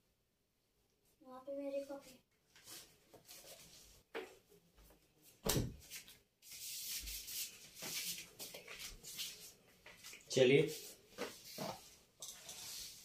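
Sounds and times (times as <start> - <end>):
handling rubbing and rustling: 5.8 - 13.0.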